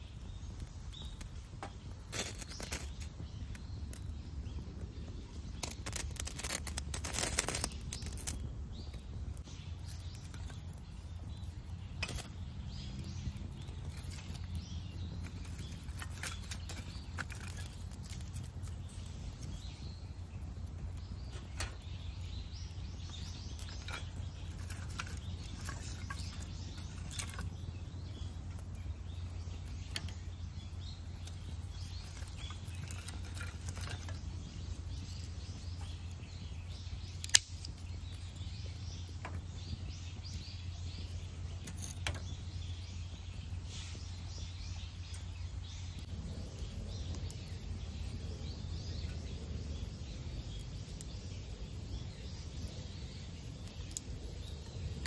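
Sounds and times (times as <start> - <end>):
loud snap of burning wood: 0.0 - 55.0
wood fire crackling and popping: 0.0 - 55.0
steady low hum: 3.0 - 55.0.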